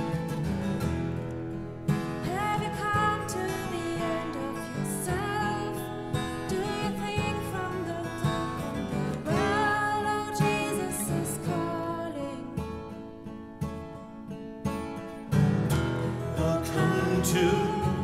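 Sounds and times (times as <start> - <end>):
strummed acoustic guitar: 0.0 - 18.0
woman singing: 2.2 - 13.0, 16.4 - 18.0.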